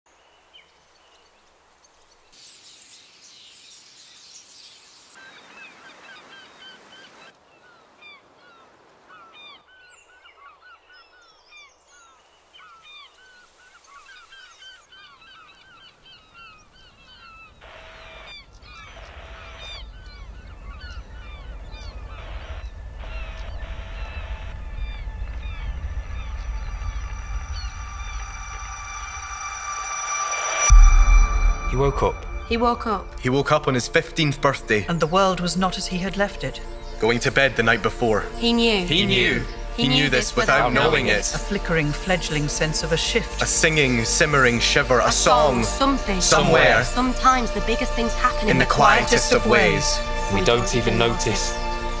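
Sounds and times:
birds chirping: 0:00.1 - 0:52.0
low rumble: 0:18.9 - 0:35.1.

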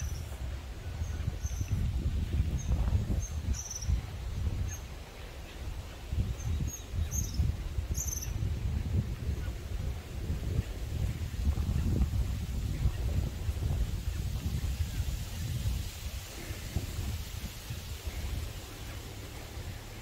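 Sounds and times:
small birds chirping: 0:00.0 - 0:09.7
wind on microphone: 0:00.0 - 0:20.0.

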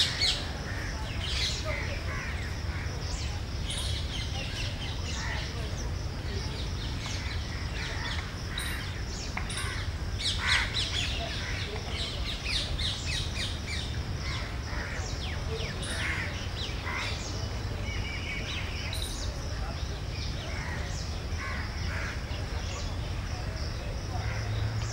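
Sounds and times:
birds chirping: 0:00.0 - 0:24.9.

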